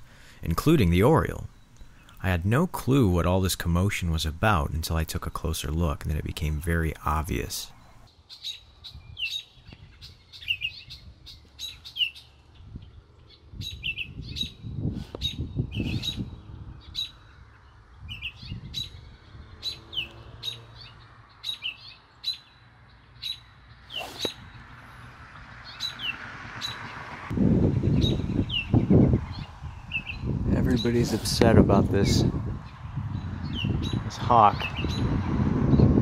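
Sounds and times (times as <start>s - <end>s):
songbird alarm calls: 6.4s - 24.7s, 25.6s - 27.0s, 27.7s - 35.8s.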